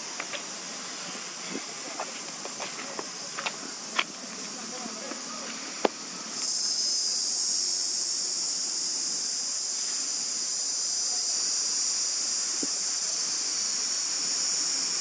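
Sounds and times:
high-pitched insect chorus: 0.0s - 15.0s.

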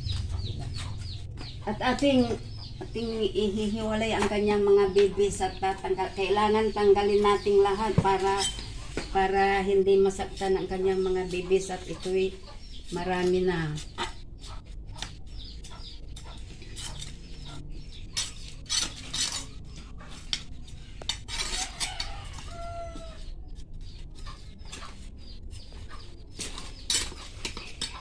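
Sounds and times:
trowel scraping clay pot: 12.8s - 20.4s, 21.0s - 22.4s
chicken calling: 21.4s - 23.3s.

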